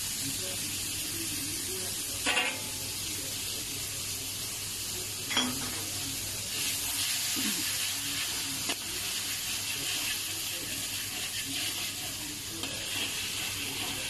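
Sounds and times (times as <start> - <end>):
sauce sizzling in hot oil: 0.0 - 14.0
spatula scraping wok: 6.4 - 14.0.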